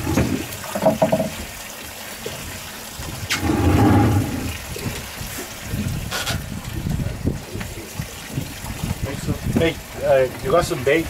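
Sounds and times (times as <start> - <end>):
rushing water: 0.0 - 11.0
wind noise: 3.0 - 10.8
low rumbling surges: 3.3 - 4.8.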